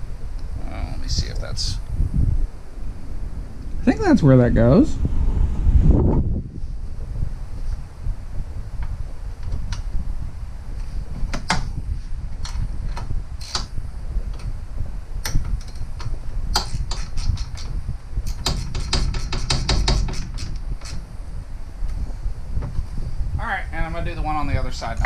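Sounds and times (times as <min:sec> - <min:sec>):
steady low rumble: 0:00.0 - 0:19.3, 0:20.2 - 0:25.0.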